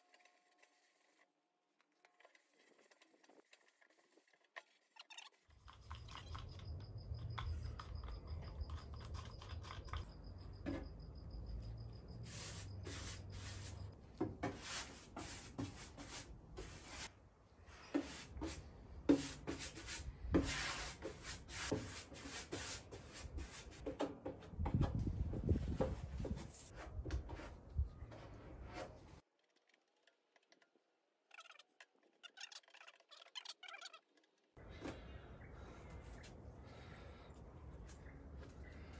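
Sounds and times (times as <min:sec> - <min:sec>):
paintbrush strokes on wood: 0:12.2 - 0:13.9, 0:14.5 - 0:17.1.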